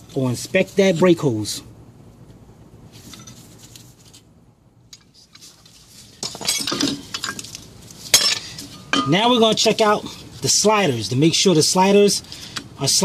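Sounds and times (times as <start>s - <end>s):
metallic clinks and scrapes: 2.9s - 4.2s.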